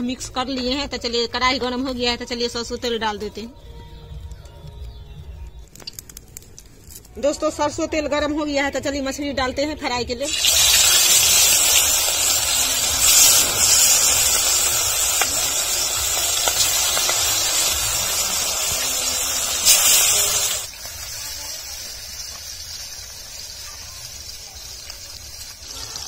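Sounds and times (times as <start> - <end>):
fish frying in hot oil: 10.2 - 26.0.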